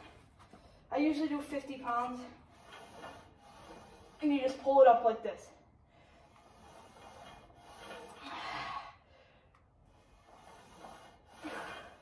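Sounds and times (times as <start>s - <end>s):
person breathing with strain: 8.1s - 10.0s.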